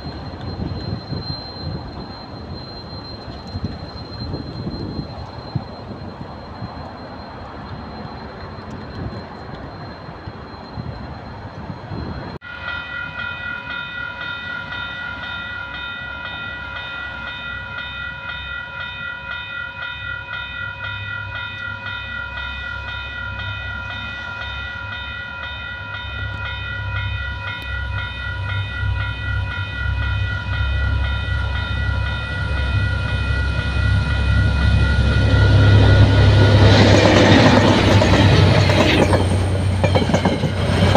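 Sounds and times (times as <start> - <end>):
diesel locomotive engine rumble: 0.0 - 40.9
level crossing bells ringing: 12.4 - 40.9.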